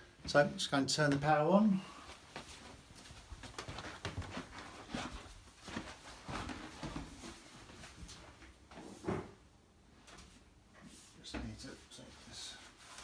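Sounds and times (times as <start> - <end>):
footsteps on hard floor: 2.2 - 9.3.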